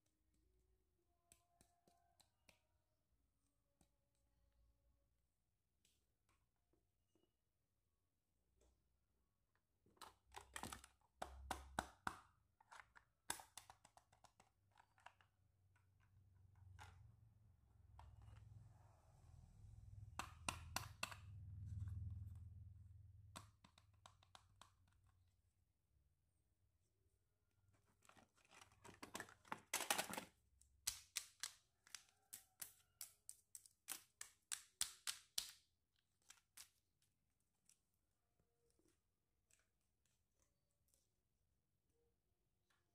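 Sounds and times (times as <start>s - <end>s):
sharp plastic clicks and taps: 20.2s - 21.3s
plastic toys rustling in box: 27.8s - 30.4s.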